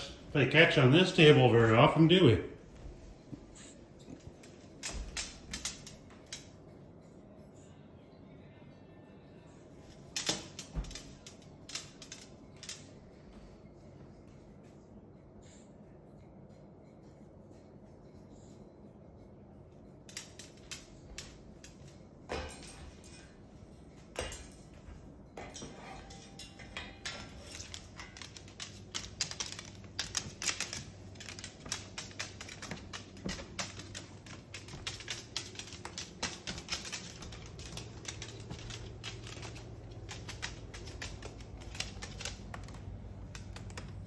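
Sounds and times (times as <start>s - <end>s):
bird claws tapping on wooden floor: 26.0s - 44.0s.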